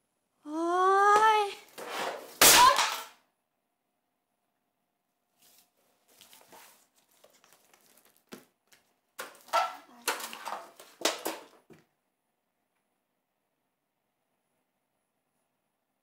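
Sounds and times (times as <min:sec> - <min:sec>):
box scraping across floor: 0:01.7 - 0:02.4
paper rustling: 0:05.4 - 0:11.1.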